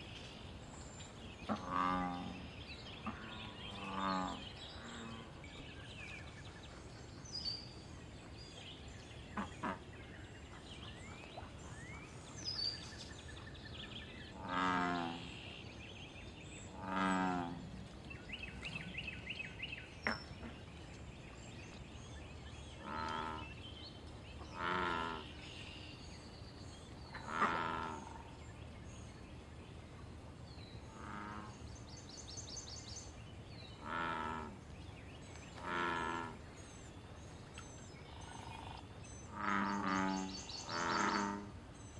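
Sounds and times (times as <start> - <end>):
bullfrog croaking: 1.5 - 5.2, 14.3 - 15.3, 16.7 - 17.6, 22.8 - 23.5, 24.5 - 25.3, 27.1 - 28.3, 30.9 - 31.6, 33.8 - 34.6, 35.6 - 36.4, 38.1 - 41.5.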